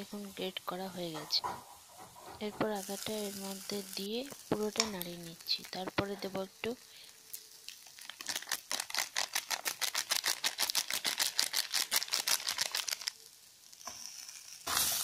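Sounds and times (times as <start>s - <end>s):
plastic packet crinkling: 4.7s - 6.0s, 7.3s - 13.3s.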